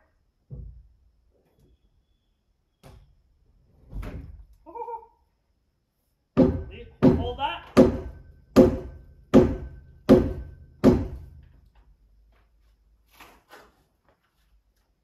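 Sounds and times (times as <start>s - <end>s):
hammer striking timber beam: 6.4s - 11.5s.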